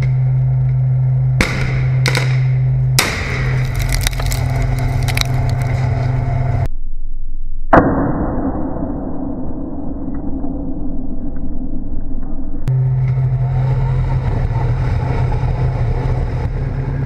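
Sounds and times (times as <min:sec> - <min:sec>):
dull rumble: 0:00.0 - 0:06.7, 0:09.8 - 0:17.0
tank engine humming: 0:00.0 - 0:06.7, 0:12.7 - 0:17.0.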